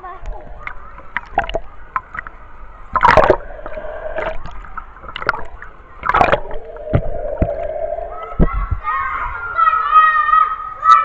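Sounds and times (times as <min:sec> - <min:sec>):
water splashing and gurgling: 0:00.0 - 0:08.8
loud splashes: 0:02.9 - 0:08.7.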